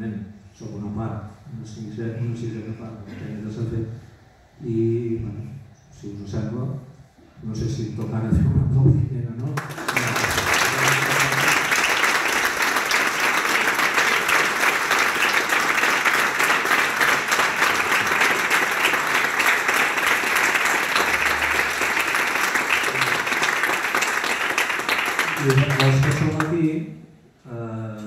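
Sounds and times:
audience applauding: 9.6 - 26.6.

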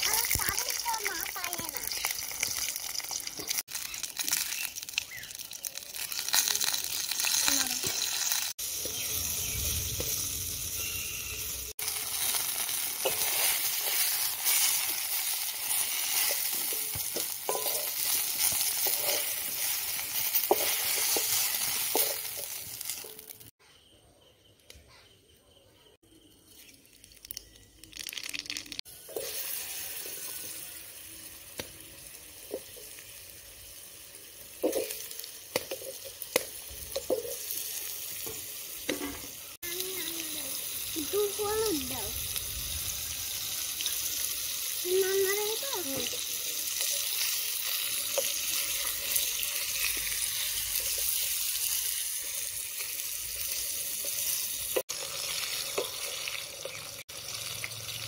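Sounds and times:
vegetables sizzling in oil: 0.0 - 23.5, 26.6 - 58.0
metal spatula scraping wok: 12.2 - 23.3.

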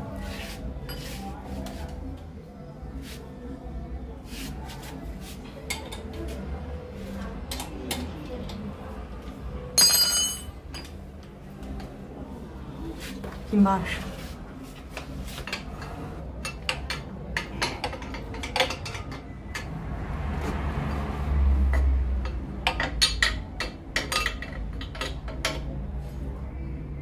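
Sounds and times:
metal hand tools clinking: 9.8 - 10.5.

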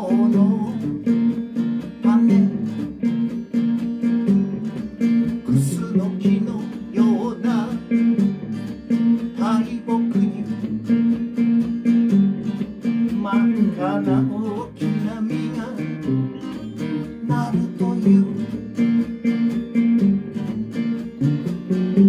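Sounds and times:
acoustic guitar strumming: 0.0 - 22.0
electric guitar lead lines: 0.0 - 22.0.

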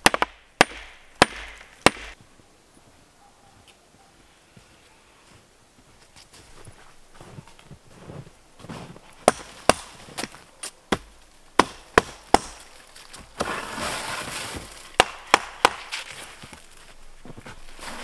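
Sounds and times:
hatchet chopping wood: 0.0 - 2.2, 9.2 - 12.8, 15.0 - 16.1
rustling and scraping: 6.0 - 9.2, 12.7 - 15.0, 15.9 - 18.0.

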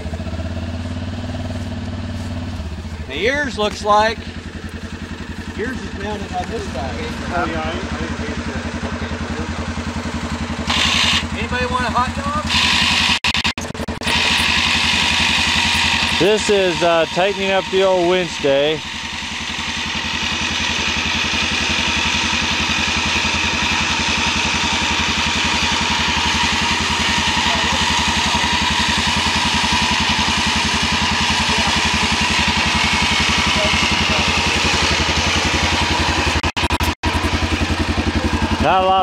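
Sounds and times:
atv engine idling: 0.0 - 39.0
electric winch whining: 10.6 - 38.9.

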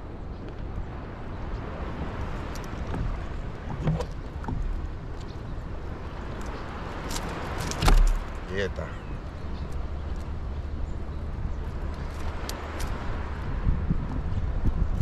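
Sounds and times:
water around kayak: 0.0 - 15.0
wind: 0.0 - 15.0
light clicks and knocks: 2.5 - 5.4.

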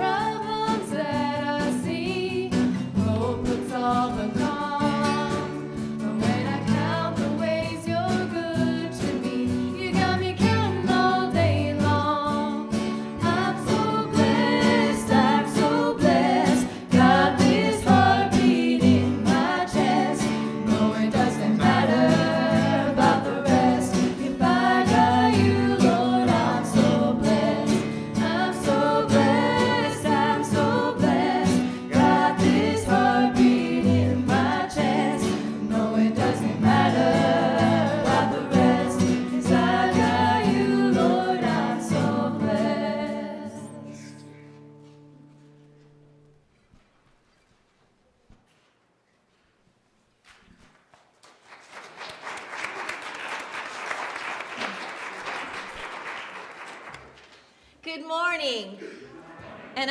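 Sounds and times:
voices singing together: 0.0 - 44.1
band playing: 12.8 - 43.2.

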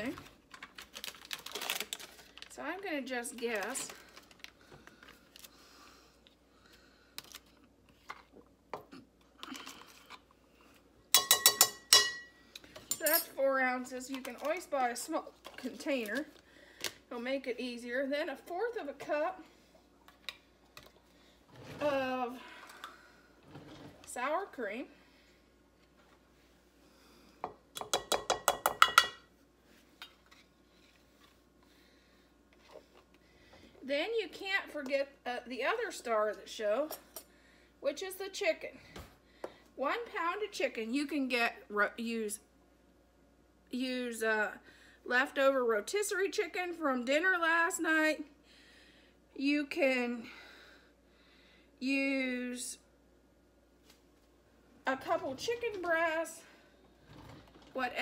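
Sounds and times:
spoon clinking on a dish rim: 11.2 - 12.3.

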